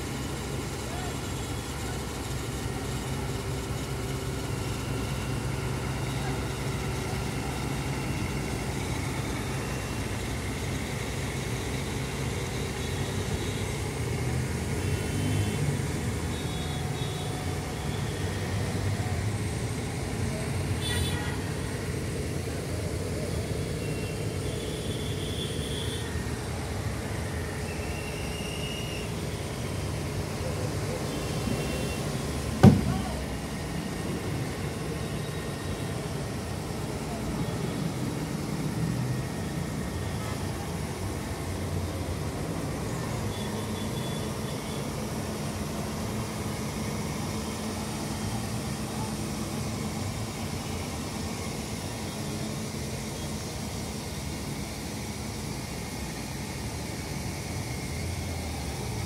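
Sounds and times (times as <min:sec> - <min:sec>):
crane diesel engine running: 0:00.0 - 0:59.0
sharp knock: 0:32.6 - 0:33.1.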